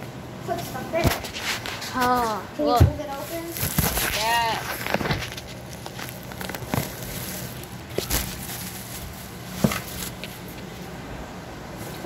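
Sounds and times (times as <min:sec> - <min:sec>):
sharp knocks and handling noises: 0:07.9 - 0:10.7.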